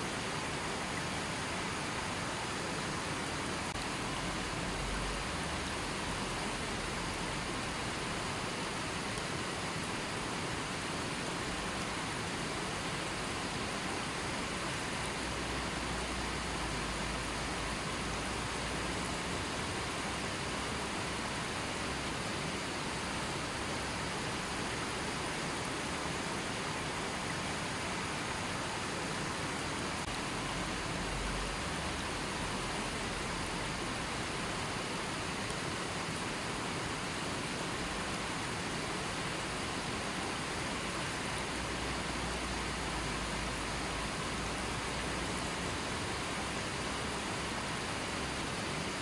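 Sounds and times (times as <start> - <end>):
river water rushing over rocks: 0.0 - 49.0.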